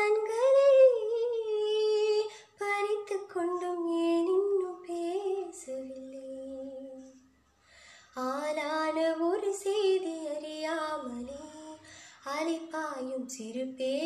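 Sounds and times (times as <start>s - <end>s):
woman singing unaccompanied: 0.0s - 7.2s, 8.2s - 14.0s.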